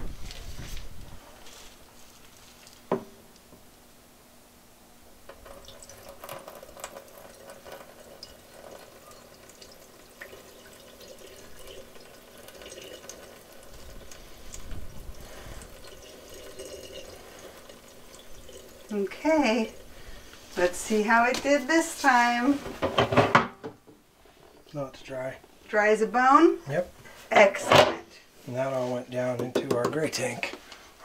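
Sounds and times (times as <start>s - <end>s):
faint steady hum: 0.0s - 31.0s
water trickling into a drain: 5.3s - 20.2s.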